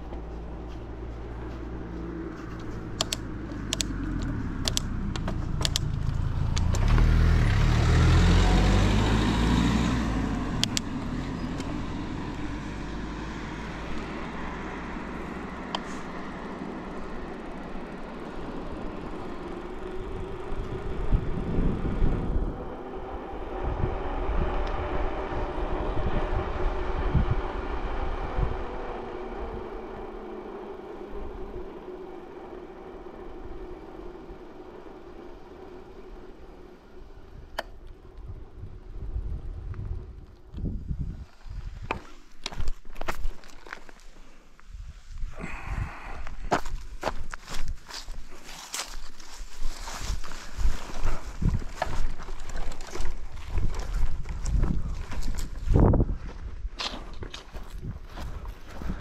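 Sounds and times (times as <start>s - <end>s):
vehicle passing by: 0.0s - 42.2s
road and wind rumble: 0.0s - 59.0s.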